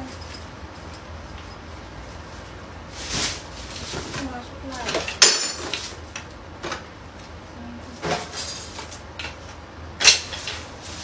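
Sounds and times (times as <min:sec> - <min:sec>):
plastic bag rustling: 0:02.3 - 0:04.9, 0:10.3 - 0:11.0.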